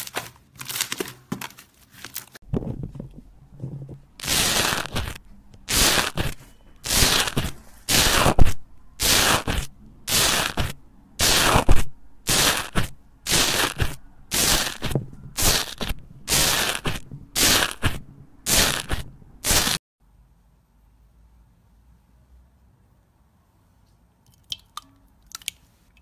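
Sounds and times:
press tool squishing foam slime: 0:04.2 - 0:19.8.

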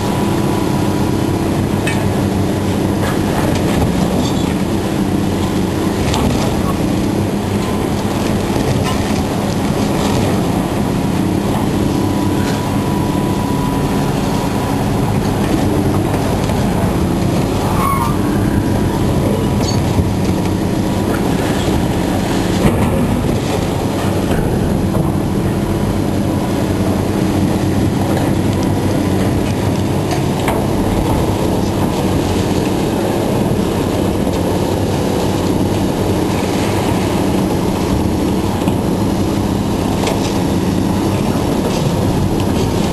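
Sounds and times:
heavy machinery running: 0:00.0 - 0:42.9
high metal squeal: 0:17.6 - 0:19.0.

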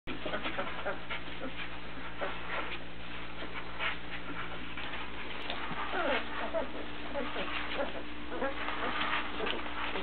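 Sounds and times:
puppies suckling: 0:00.1 - 0:10.0
steady low hum: 0:00.1 - 0:10.0
puppies squeaking: 0:05.3 - 0:10.0.

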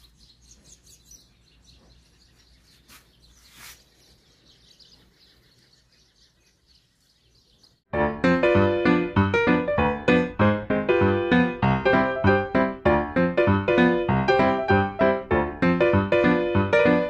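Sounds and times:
bird chirps: 0:00.0 - 0:07.9.

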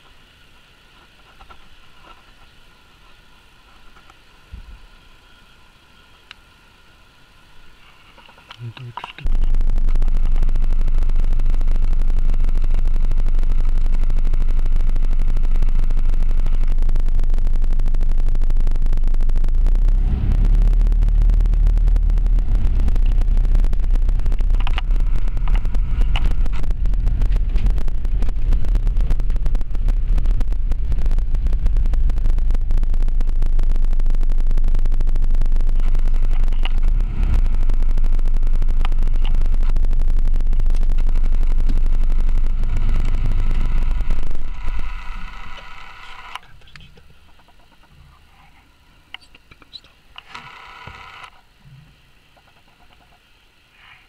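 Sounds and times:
vehicle engine and tyres rumbling: 0:07.4 - 0:48.6.

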